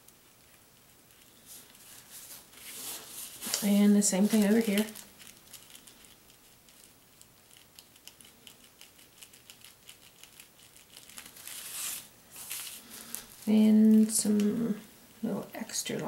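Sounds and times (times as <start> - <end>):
card tag rustling on paper: 1.5 - 6.9.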